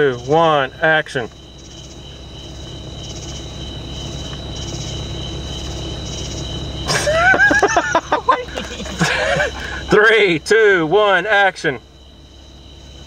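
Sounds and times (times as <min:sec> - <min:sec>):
crickets chirping: 0:00.0 - 0:13.0
low steady rumble: 0:00.0 - 0:13.0.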